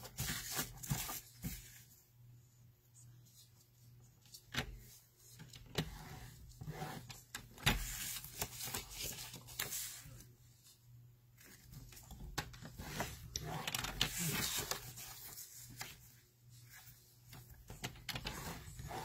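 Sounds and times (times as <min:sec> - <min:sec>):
scoring tool scraping groove: 0:06.0 - 0:07.1.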